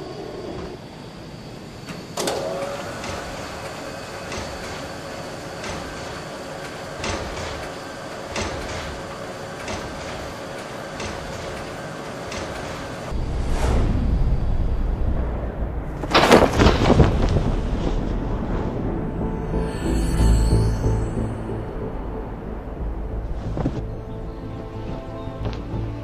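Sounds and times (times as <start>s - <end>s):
steady mechanical hum: 0.0s - 26.0s
mechanical whine gliding up: 17.6s - 24.9s.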